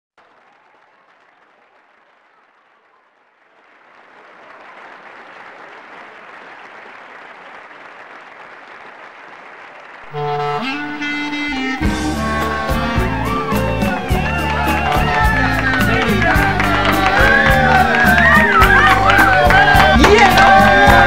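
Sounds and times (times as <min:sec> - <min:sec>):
group applause: 0:00.2 - 0:21.0
loud tango music: 0:10.1 - 0:21.0.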